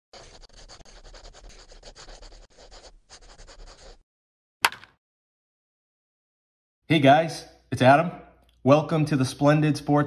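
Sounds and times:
pen scratching on paper: 0.1s - 4.0s.

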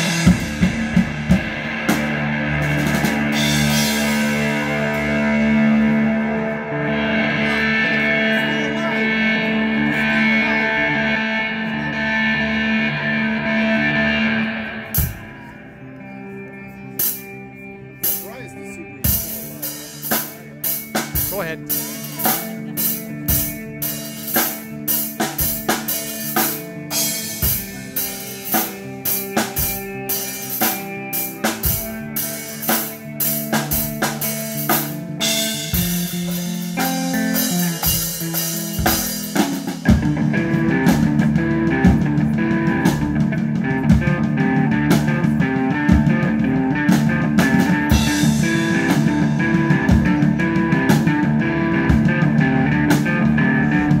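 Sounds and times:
drum beat: 0.0s - 6.0s, 19.1s - 44.4s
live rock band playing: 0.0s - 54.0s.

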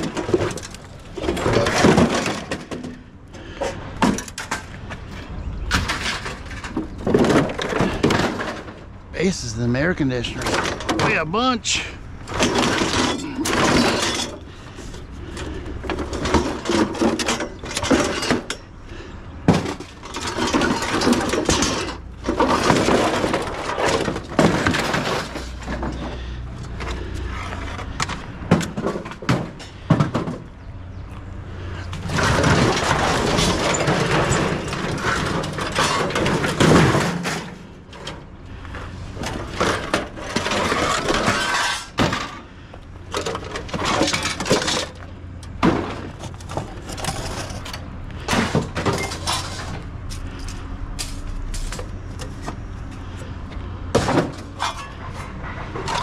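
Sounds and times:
scrap metal crashing onto pile: 0.0s - 3.0s, 5.7s - 8.9s, 12.3s - 14.5s, 15.4s - 18.7s, 19.4s - 26.4s, 32.0s - 38.2s, 39.2s - 42.5s, 43.1s - 49.9s, 53.9s - 56.0s.

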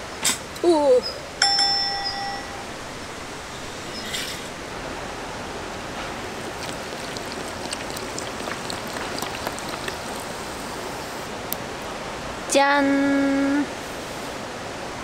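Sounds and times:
drink fizzing with hiss: 5.6s - 11.5s
bubbles crackling: 6.0s - 11.2s.

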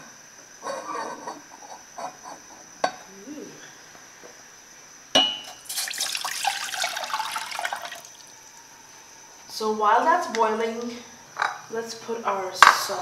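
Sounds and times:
water pouring into metal pot: 5.6s - 8.3s.

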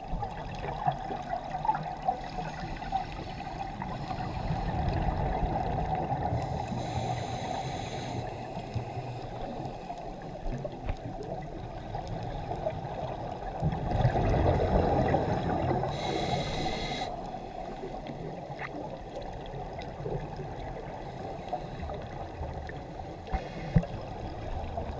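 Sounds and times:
water rush and exhaled bubbles: 0.0s - 24.9s
regulator hissing inhale: 2.6s - 5.0s, 6.3s - 10.4s, 15.8s - 17.8s, 21.0s - 22.2s, 23.0s - 23.9s.

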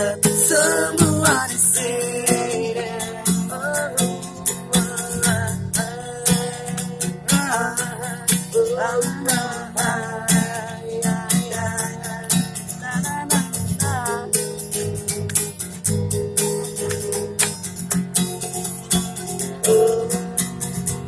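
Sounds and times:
man singing: 0.0s - 14.5s
acoustic guitar strumming: 0.0s - 21.0s.

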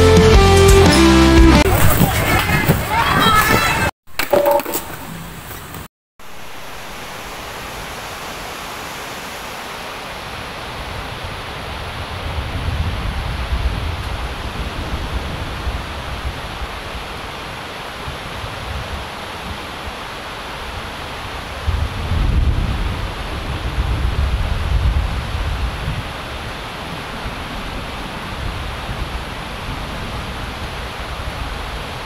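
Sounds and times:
river rushing: 6.2s - 22.0s, 22.7s - 32.0s.

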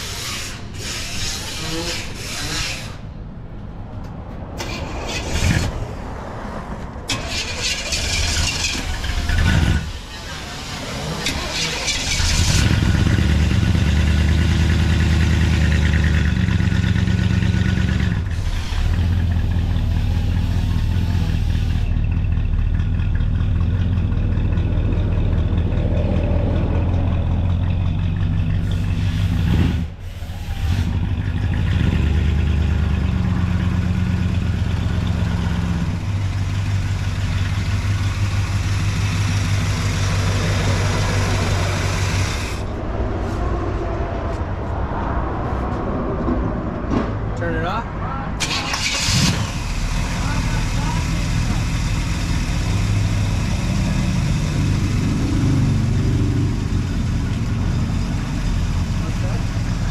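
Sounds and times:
car engine idling: 7.0s - 42.8s, 48.4s - 59.9s.

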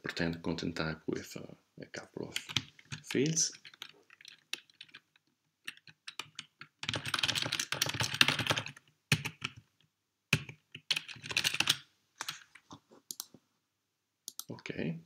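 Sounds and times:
typing on computer keyboard: 2.4s - 9.7s, 10.3s - 13.3s.

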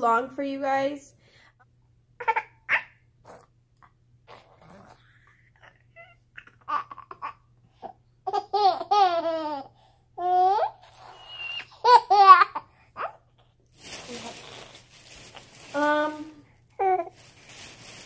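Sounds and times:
baby laughing: 2.2s - 3.0s, 4.3s - 13.2s.

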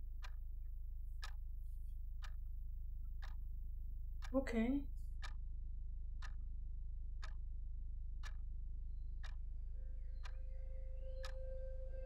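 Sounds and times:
clock ticking: 0.0s - 12.0s
steady low hum: 0.0s - 12.0s.

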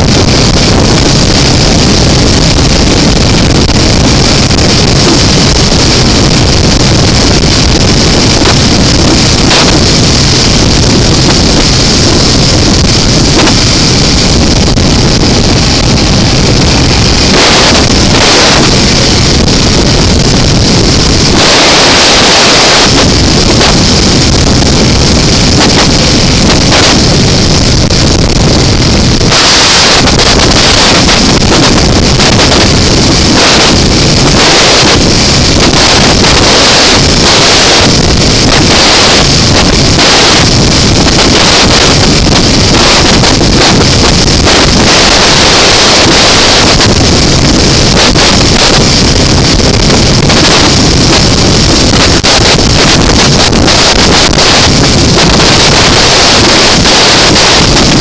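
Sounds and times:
motorcycle engine running: 0.0s - 58.0s
wind rushing over microphone: 0.0s - 58.0s.

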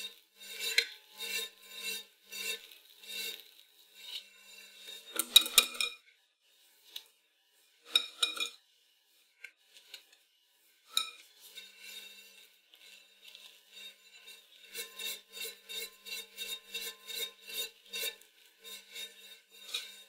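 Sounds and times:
cream being spread: 0.0s - 4.7s, 11.5s - 20.0s
utensils clinking on metal bowl: 7.9s - 8.6s.

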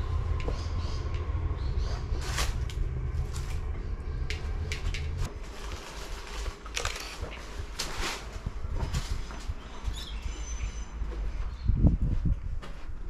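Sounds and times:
low rumble: 0.0s - 13.0s
footsteps: 10.9s - 13.0s.

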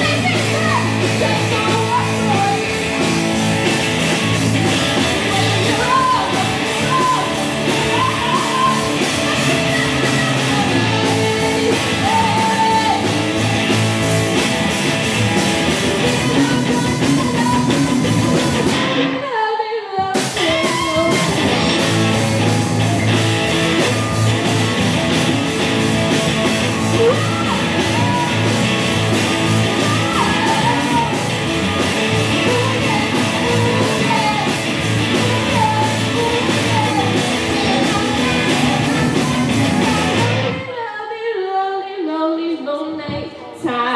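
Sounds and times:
girl singing into a microphone: 0.0s - 2.8s, 4.7s - 13.1s, 16.0s - 21.2s, 29.8s - 31.2s, 32.3s - 43.9s
bass guitar: 0.0s - 19.2s, 20.2s - 40.6s
electric guitars: 0.0s - 19.2s, 20.2s - 40.7s
drums: 0.0s - 40.9s.

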